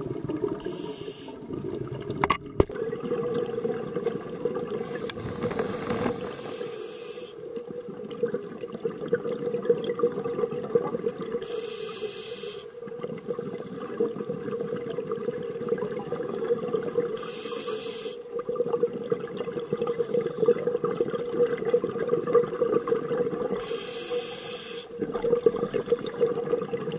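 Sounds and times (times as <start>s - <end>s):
underwater bubbling: 0.0s - 26.9s
regulator hiss: 0.7s - 1.4s, 4.9s - 7.4s, 11.4s - 12.7s, 17.2s - 18.3s, 23.6s - 25.0s
diver breathing through regulator: 4.8s - 7.4s, 11.4s - 12.7s, 23.6s - 25.0s.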